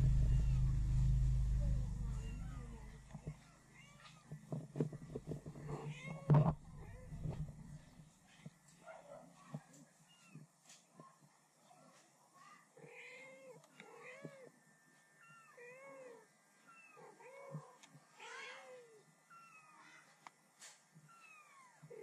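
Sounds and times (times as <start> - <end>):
kittens and cat meowing: 0.0 - 4.3, 15.2 - 20.2, 21.0 - 22.0.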